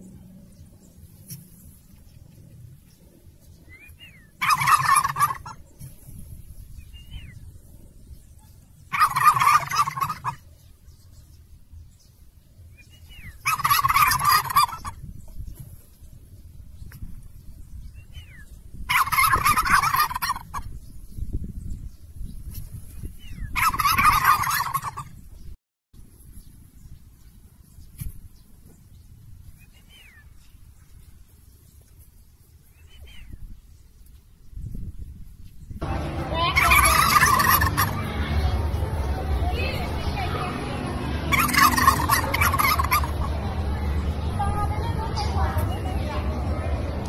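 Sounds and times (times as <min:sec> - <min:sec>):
low rumbling noise: 0:00.0 - 0:27.8, 0:34.6 - 0:47.0
turkey gobbling: 0:03.8 - 0:05.9, 0:08.9 - 0:10.5, 0:13.1 - 0:15.0, 0:18.2 - 0:20.7, 0:23.2 - 0:25.1, 0:36.3 - 0:39.1, 0:39.8 - 0:43.4.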